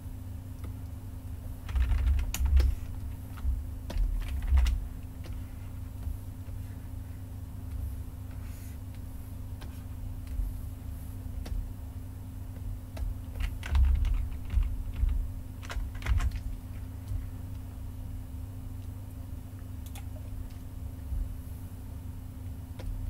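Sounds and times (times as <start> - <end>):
low steady hum: 0.0 - 23.0
computer keyboard clicks: 1.7 - 2.8, 3.9 - 5.4, 13.0 - 16.4.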